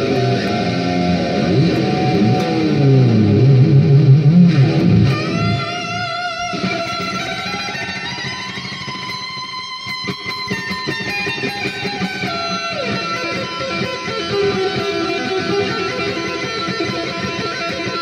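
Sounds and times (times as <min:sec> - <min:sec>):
electric guitar notes: 0:00.0 - 0:18.0.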